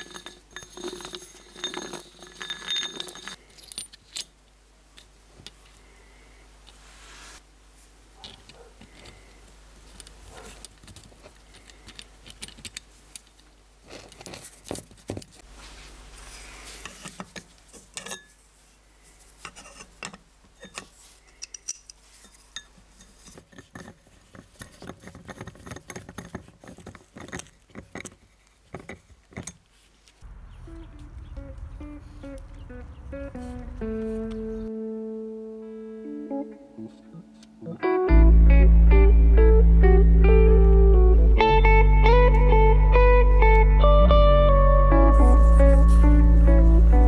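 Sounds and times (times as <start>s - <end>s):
metal parts clicking and clinking: 0.0s - 5.8s, 9.9s - 15.3s, 16.8s - 18.4s, 19.4s - 28.2s.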